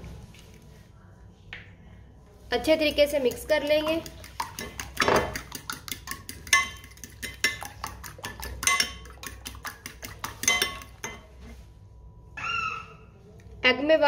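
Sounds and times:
spoon clinking against glass bowl: 3.4s - 11.4s.

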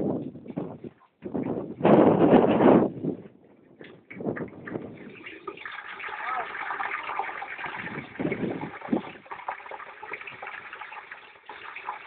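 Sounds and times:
hot oil bubbling and crackling: 4.5s - 12.0s.

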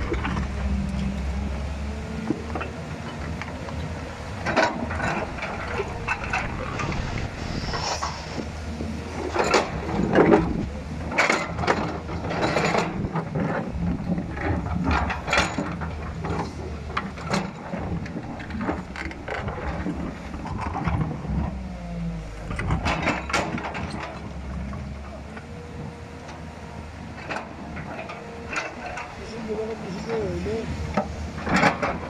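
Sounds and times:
low diesel engine rumble: 0.0s - 32.0s
metal clanking and scraping on rock: 9.2s - 10.5s.

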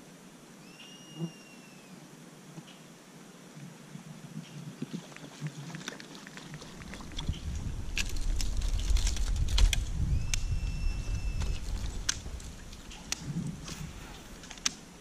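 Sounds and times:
fishing gear clicking and knocking: 6.8s - 9.9s.

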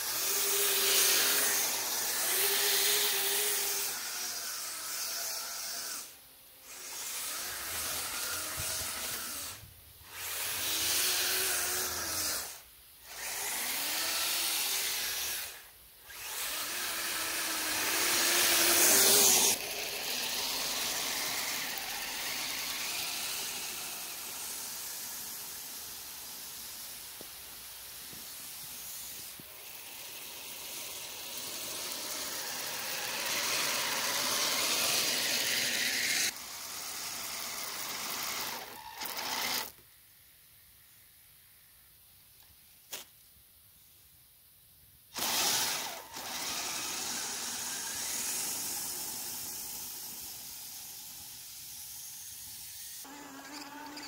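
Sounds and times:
electric motor whining: 0.0s - 27.2s, 52.9s - 54.0s
steady hiss: 6.0s - 45.2s, 45.8s - 53.8s.

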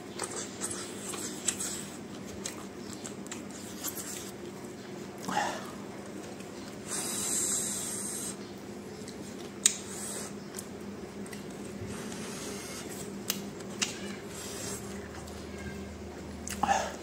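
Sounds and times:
steady low hum: 0.0s - 17.0s
crisp crunching of chewing: 0.1s - 6.8s.

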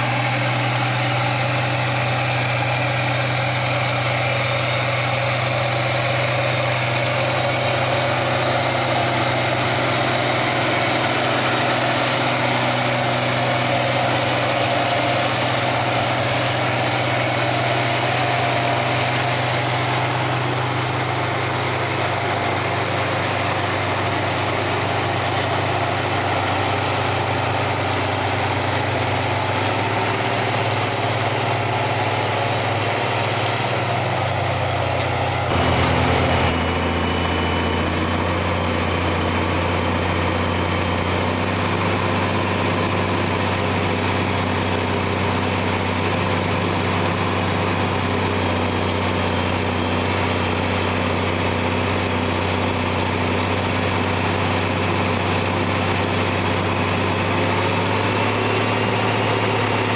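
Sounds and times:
tractor diesel engines under load: 0.0s - 59.9s.

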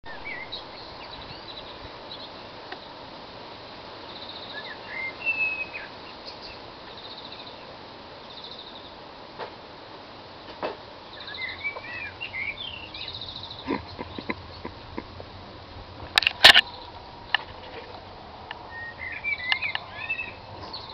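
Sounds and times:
songbirds singing: 0.1s - 9.2s, 10.2s - 20.9s
sharp clicks: 16.1s - 16.7s.

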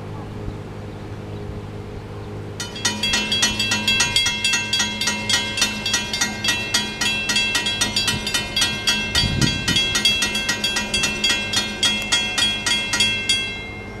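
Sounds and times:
railroad crossing bells ringing: 2.6s - 14.0s.

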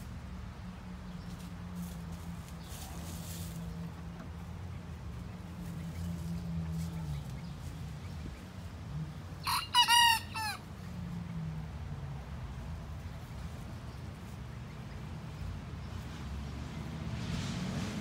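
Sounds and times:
young rooster crowing: 9.4s - 10.7s.

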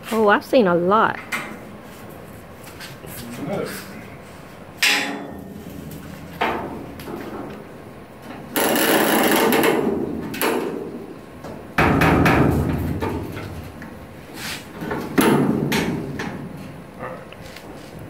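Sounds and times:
knock: 11.8s - 13.2s.

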